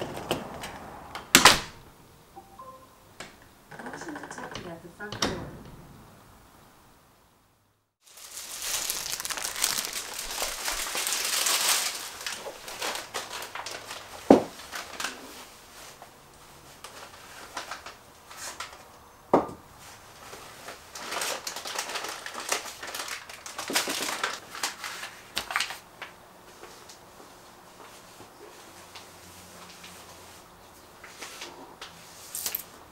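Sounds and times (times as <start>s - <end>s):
plastic bags rustling: 8.0s - 18.9s, 19.8s - 26.0s.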